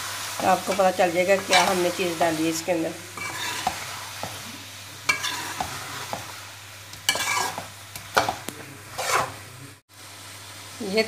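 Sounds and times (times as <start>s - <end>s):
oil sizzling: 0.0s - 11.0s
metal spoon scraping a pan: 0.4s - 6.4s, 7.0s - 9.5s.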